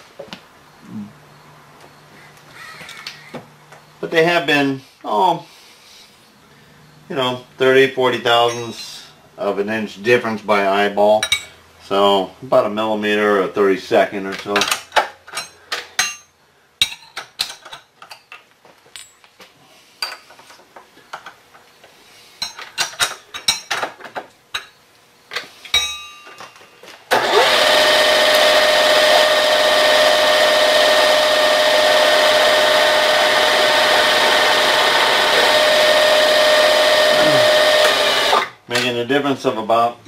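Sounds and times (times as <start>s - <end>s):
metal tooling clinks and knocks: 8.4s - 9.0s, 25.7s - 26.7s
milling machine cutting with whine: 27.1s - 38.5s.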